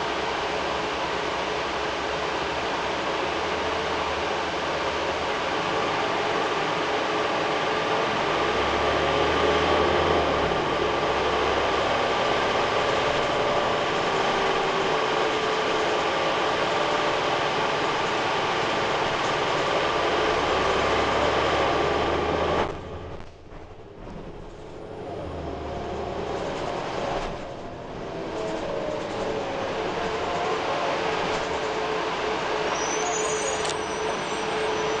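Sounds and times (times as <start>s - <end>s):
bus cabin drone: 0.0s - 35.0s.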